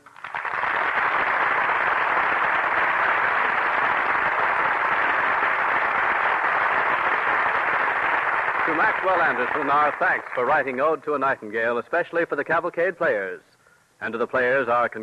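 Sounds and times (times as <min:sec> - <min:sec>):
studio audience applauding: 0:00.0 - 0:11.0.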